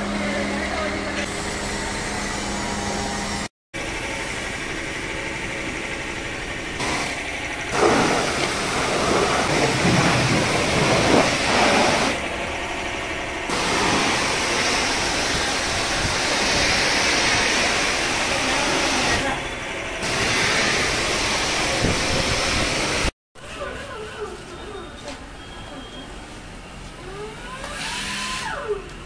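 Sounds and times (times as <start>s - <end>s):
pressure washer spray hissing: 6.8s - 12.2s, 13.5s - 19.3s, 20.0s - 23.1s.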